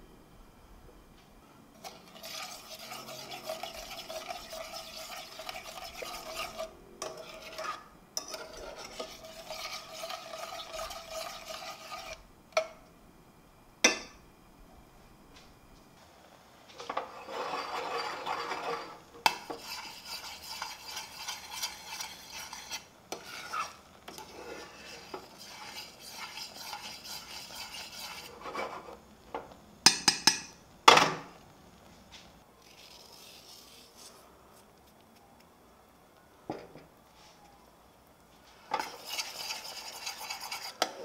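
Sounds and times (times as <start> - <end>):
spoon stirring jam in a saucepan: 1.7 - 12.9, 16.8 - 30.6, 38.6 - 41.0.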